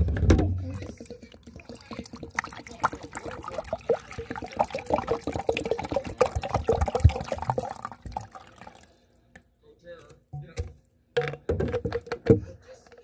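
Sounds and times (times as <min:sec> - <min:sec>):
water sloshing in plastic bottle: 0:00.5 - 0:08.9.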